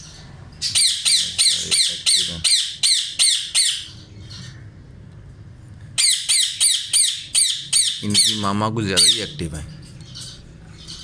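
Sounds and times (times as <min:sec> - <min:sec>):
parrot squawking: 0:00.6 - 0:04.5, 0:06.0 - 0:09.4.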